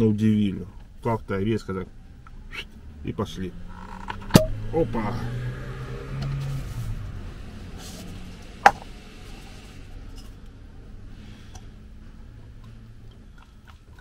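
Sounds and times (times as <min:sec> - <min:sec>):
sharp knock: 0:04.3 - 0:04.6.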